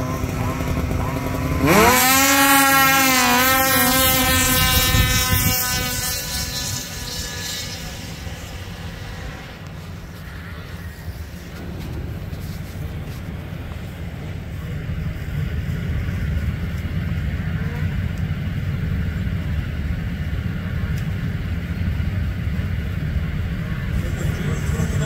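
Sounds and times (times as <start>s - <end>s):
snowmobile engines rumbling: 0.0s - 25.0s
wind buffeting microphone: 3.5s - 17.3s.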